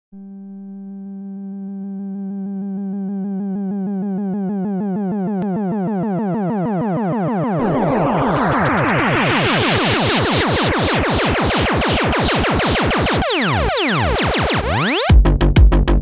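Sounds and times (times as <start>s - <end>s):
pulsing synthesizer build-up: 1.7s - 15.1s
electronic dance music: 4.5s - 15.7s.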